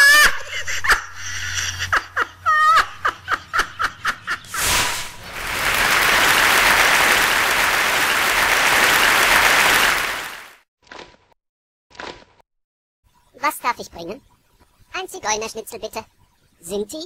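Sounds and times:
applause: 0:05.2 - 0:10.6.

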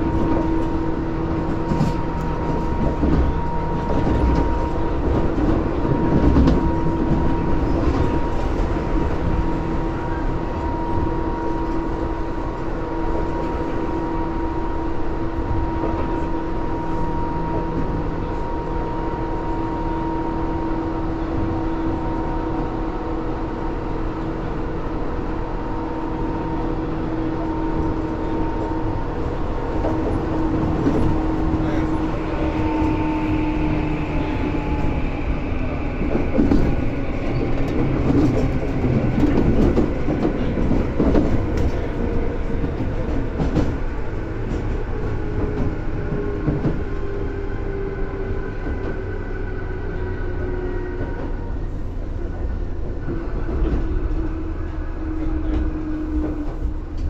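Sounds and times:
train rumbling: 0:00.0 - 0:57.0.

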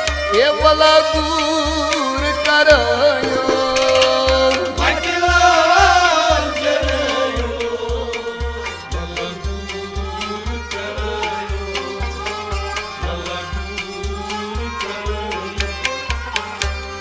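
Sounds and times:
harmonium drone and melody: 0:00.0 - 0:17.0
hand drumming on clay pot drum: 0:03.0 - 0:05.8.

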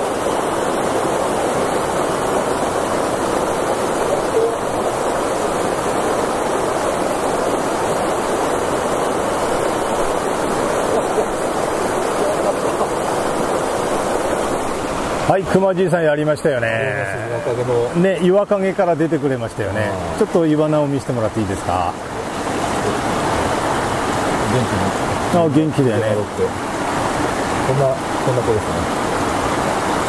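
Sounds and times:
river water rushing: 0:00.0 - 0:30.0.

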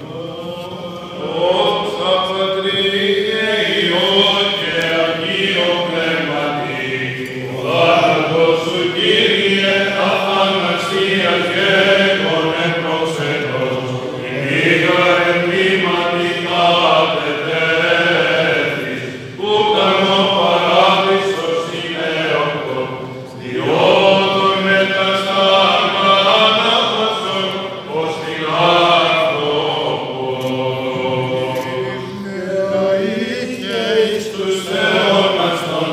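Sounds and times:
men chanting: 0:00.0 - 0:35.9
low held vocal drone: 0:17.2 - 0:35.9.

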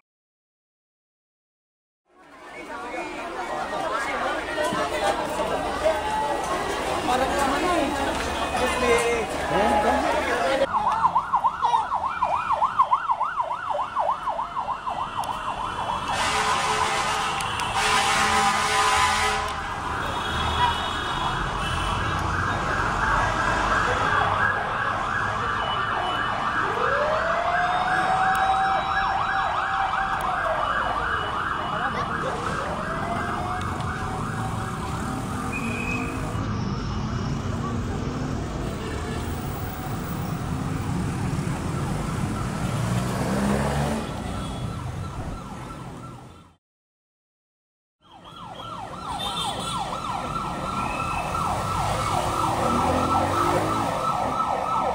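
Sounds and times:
wailing siren: 0:09.4 - 0:37.6, 0:39.5 - 0:46.6, 0:48.0 - 0:54.9
warbling siren: 0:10.6 - 0:16.9, 0:22.0 - 0:37.4, 0:48.0 - 0:54.9.

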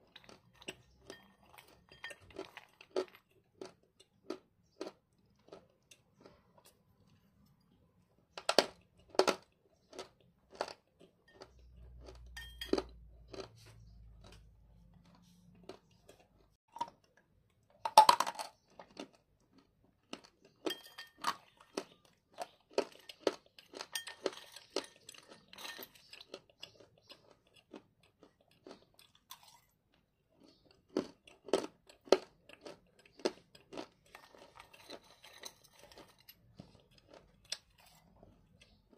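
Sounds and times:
metal spoon clinking against bowl: 0:01.0 - 0:02.4, 0:12.3 - 0:12.9, 0:20.7 - 0:21.4, 0:23.9 - 0:26.1.

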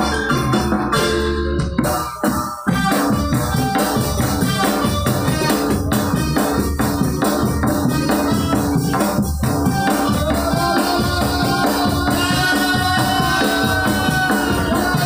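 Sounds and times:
held melodic notes: 0:00.0 - 0:10.7
fast percussion beat: 0:00.0 - 0:15.0.

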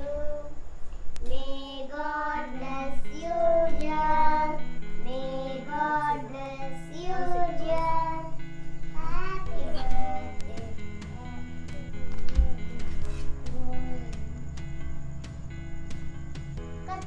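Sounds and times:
children singing: 0:01.3 - 0:08.4, 0:09.0 - 0:10.8.

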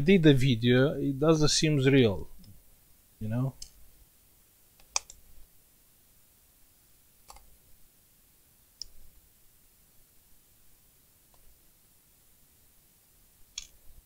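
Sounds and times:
laptop parts clicking: 0:04.8 - 0:05.2.

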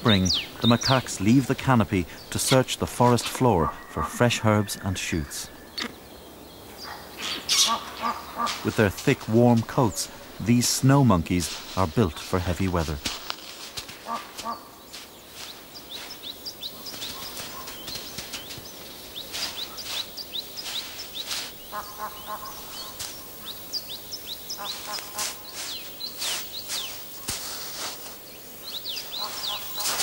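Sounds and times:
footsteps crunching in snow: 0:00.0 - 0:04.5, 0:08.4 - 0:30.0
small birds chirping: 0:00.0 - 0:30.0
brief pitched calls: 0:29.0 - 0:30.0.

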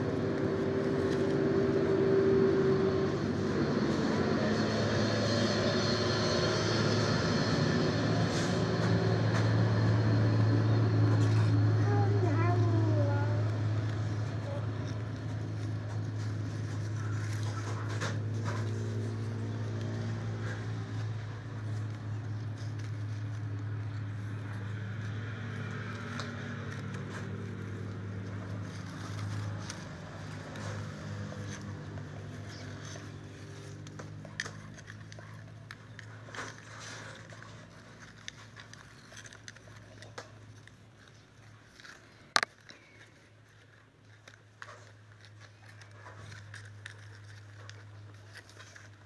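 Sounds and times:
leaves rustling and scraping: 0:11.1 - 0:49.0.

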